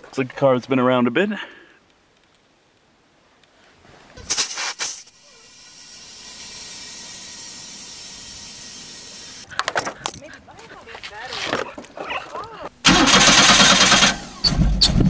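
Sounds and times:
air hissing into tyre: 4.2s - 9.5s
air hose blasts: 4.2s - 9.5s.

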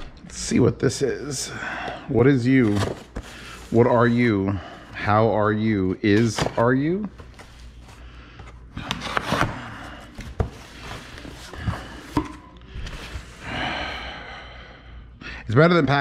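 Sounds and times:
cardboard rustling and scraping: 2.5s - 4.3s, 6.1s - 13.4s.

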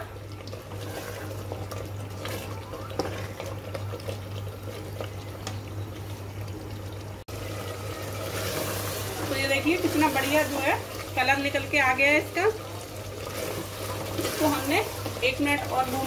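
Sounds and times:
meat bubbling and sizzling: 0.0s - 16.0s
wooden spatula scraping a pot: 13.1s - 16.0s.

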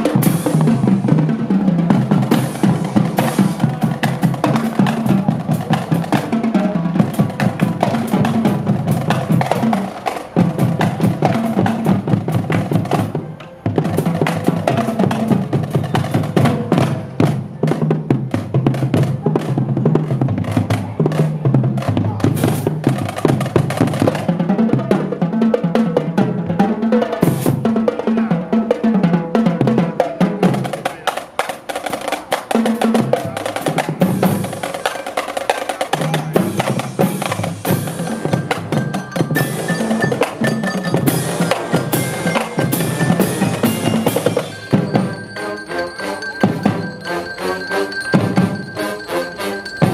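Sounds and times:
bass drums: 0.0s - 25.2s, 36.0s - 45.3s
snare and tenor drums: 0.0s - 49.9s
ringing higher notes: 36.4s - 49.9s.

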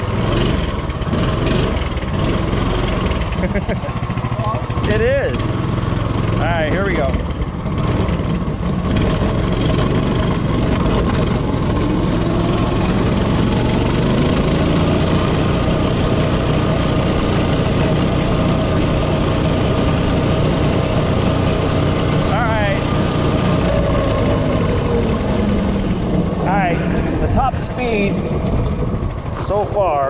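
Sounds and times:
minibike engine at full throttle: 0.0s - 30.0s
wind noise on microphone: 23.6s - 30.0s.

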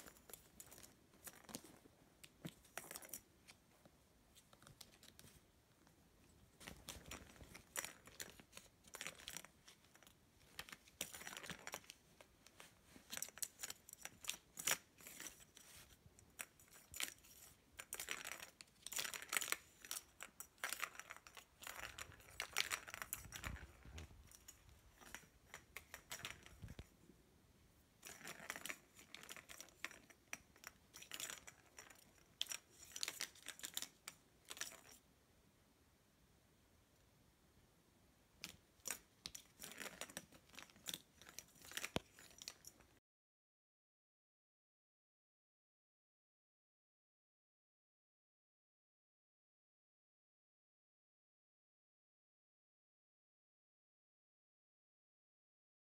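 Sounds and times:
plastic ball rattling in track: 16.4s - 26.9s, 28.0s - 35.0s.

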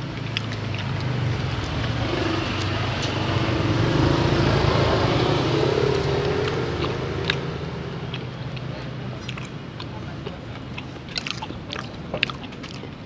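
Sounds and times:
vehicle engine passing by: 0.0s - 9.4s.

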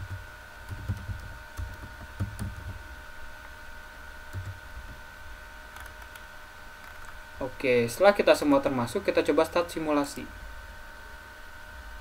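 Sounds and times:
computer mouse clicks: 0.0s - 2.8s, 4.3s - 4.6s, 5.7s - 7.2s.

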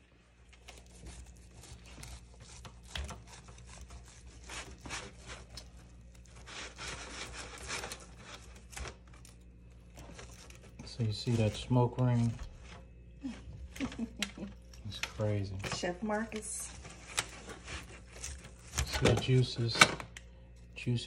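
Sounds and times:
knife sawing through ribs: 0.6s - 8.9s, 16.6s - 18.9s.

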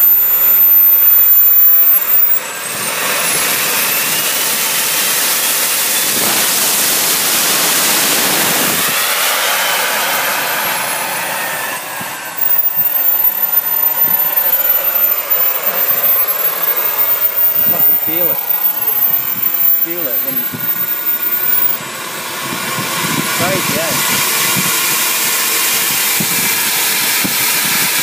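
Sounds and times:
turbine jet engine whine: 0.0s - 28.0s
rough rushing sound: 2.0s - 13.0s.

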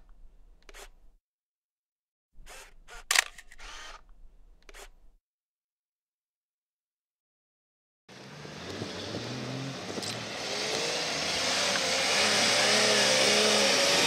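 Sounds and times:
engine revving hard: 8.1s - 14.0s.

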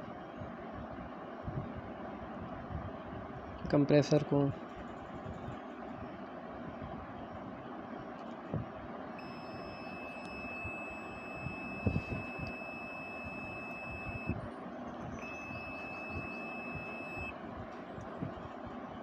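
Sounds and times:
multimeter continuity beep: 9.2s - 14.4s, 15.1s - 17.4s.

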